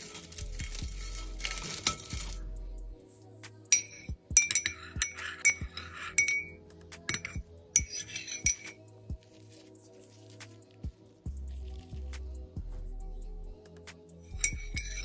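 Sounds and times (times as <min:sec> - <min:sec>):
soft background music: 0:00.0 - 0:15.0
teaspoon clinking in mug: 0:03.7 - 0:08.8.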